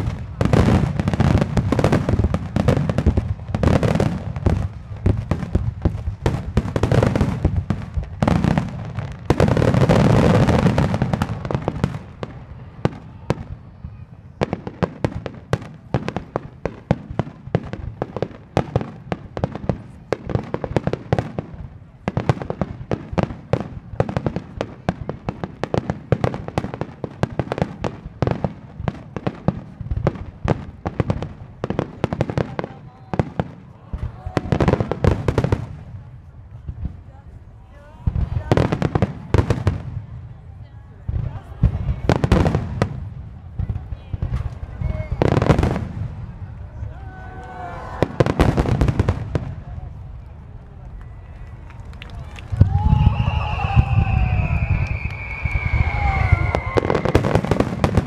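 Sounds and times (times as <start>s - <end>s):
fireworks bangs and crackling: 0.0s - 58.0s.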